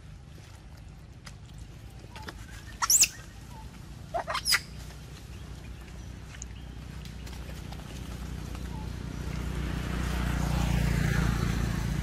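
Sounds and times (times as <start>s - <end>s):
monkeys squealing: 2.7s - 3.3s, 4.1s - 4.8s.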